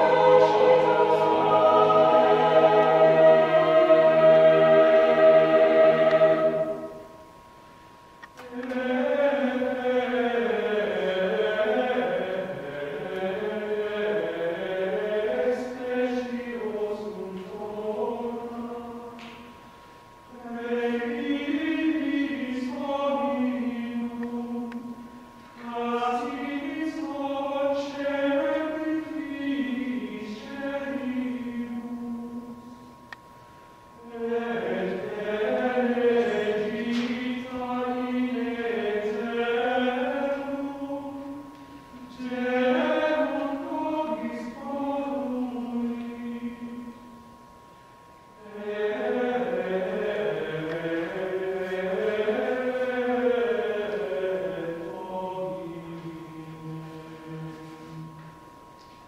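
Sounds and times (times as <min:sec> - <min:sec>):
group chanting in unison: 0:00.0 - 0:07.0.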